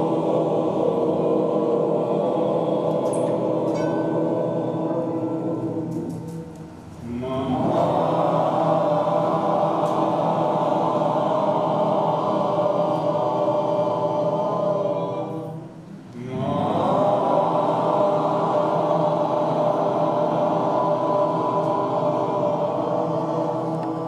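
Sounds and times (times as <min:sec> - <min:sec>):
voices chanting: 0:00.0 - 0:24.0.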